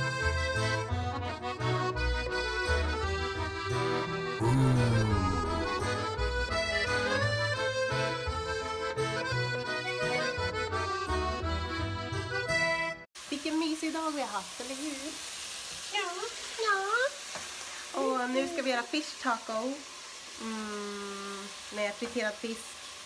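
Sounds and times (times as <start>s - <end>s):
short sliding vocal sounds: 4.4s - 6.1s
fish sizzling in oil: 13.2s - 23.0s.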